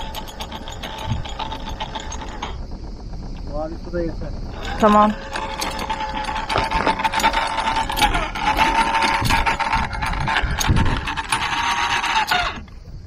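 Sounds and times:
outboard motor whining and clicking: 0:00.0 - 0:03.5, 0:04.5 - 0:13.0.

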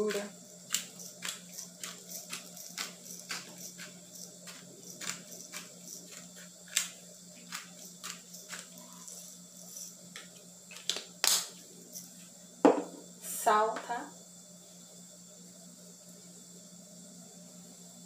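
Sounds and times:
pepper grinder clicking: 0:00.1 - 0:08.8.

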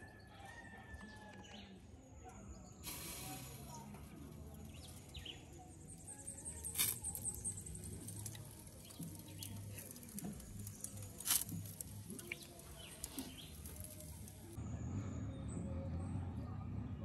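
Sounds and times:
chicken crackling on grill: 0:02.8 - 0:14.6.

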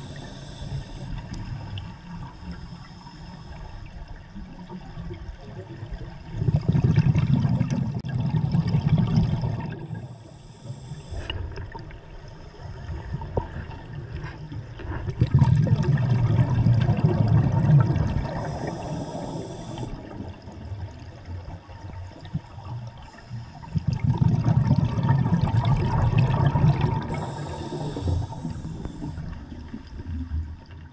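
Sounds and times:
regulator inhalation hiss: 0:00.0 - 0:04.0, 0:09.8 - 0:11.4, 0:18.2 - 0:20.1, 0:27.0 - 0:30.0
underwater exhaled bubbles gurgling: 0:00.0 - 0:30.9.

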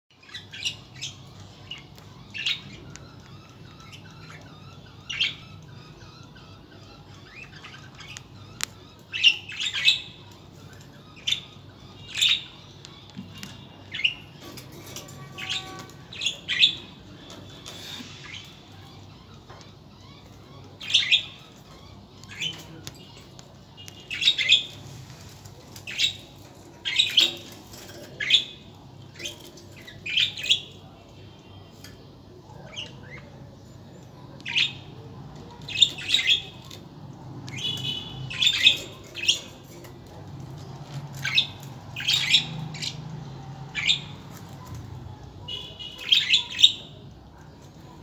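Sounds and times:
budgerigars chirping and squawking: 0:00.2 - 0:48.0.

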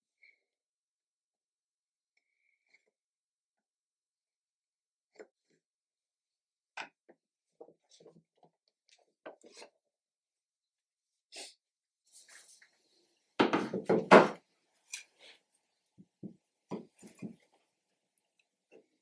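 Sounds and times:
wooden boards knocking: 0:13.4 - 0:14.4.

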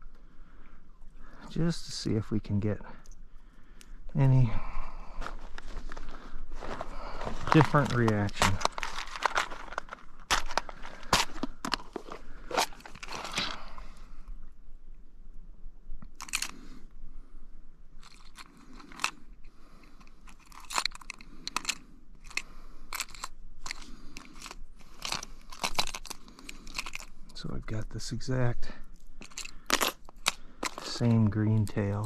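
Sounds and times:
fishing tackle clicking and crunching: 0:05.2 - 0:13.9, 0:16.0 - 0:16.7, 0:18.0 - 0:27.5, 0:28.8 - 0:32.0.

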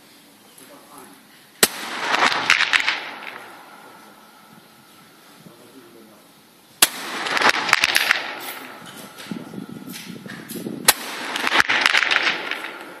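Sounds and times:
rifle shots with echo: 0:01.6 - 0:04.5, 0:06.8 - 0:09.5, 0:10.8 - 0:13.0.

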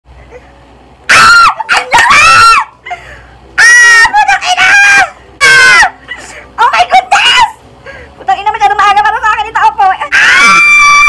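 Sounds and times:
man squealing: 0:10.2 - 0:11.0.

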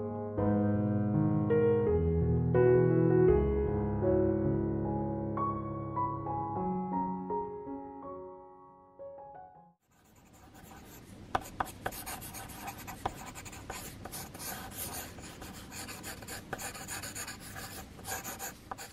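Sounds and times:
pencil sketching on paper: 0:09.9 - 0:18.9.

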